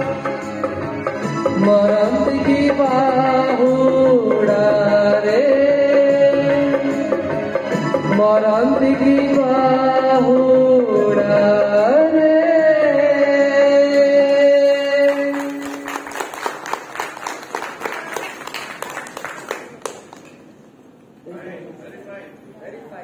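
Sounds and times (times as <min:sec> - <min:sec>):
man singing into microphone: 0:01.4 - 0:15.9
audience clapping: 0:14.2 - 0:20.6.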